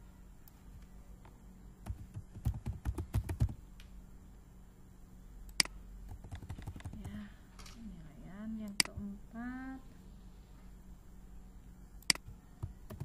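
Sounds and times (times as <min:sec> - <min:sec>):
keyboard typing: 0:01.8 - 0:03.6, 0:05.6 - 0:07.3, 0:12.1 - 0:13.0
sharp click: 0:08.7 - 0:09.0, 0:12.0 - 0:12.3.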